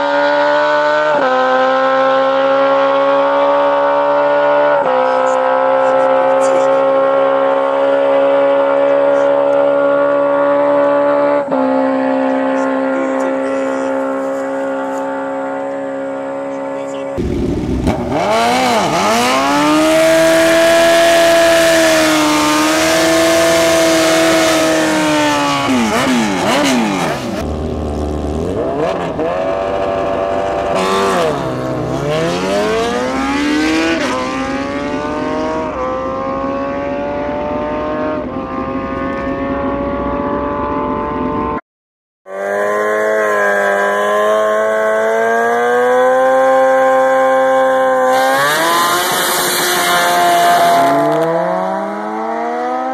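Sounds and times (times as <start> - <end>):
motorcycle engine held at high revs: 0.0 - 41.6, 42.3 - 52.9
motorcycle engines revving: 0.0 - 41.6, 42.3 - 52.9.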